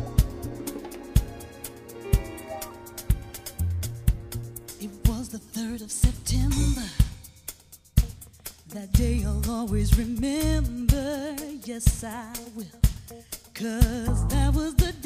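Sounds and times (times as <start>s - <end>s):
electric guitar lead line: 0.0s - 5.2s
bass and drum groove: 0.0s - 15.0s.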